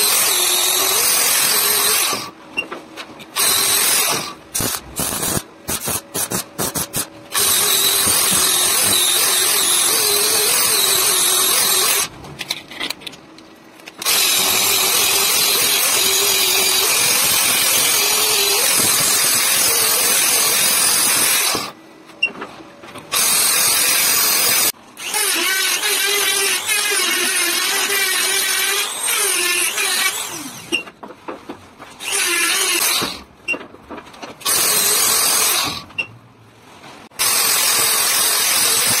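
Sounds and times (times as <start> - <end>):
welder crackling: 3.4 - 12.1.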